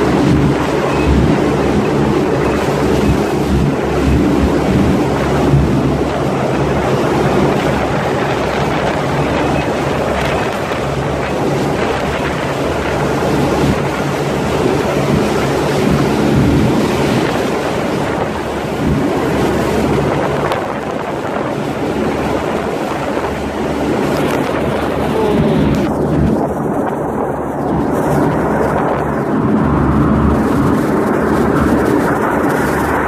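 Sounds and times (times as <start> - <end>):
boat engines running: 0.0 - 33.0
boat wake splashing: 0.0 - 33.0
wind buffeting microphone: 0.0 - 33.0.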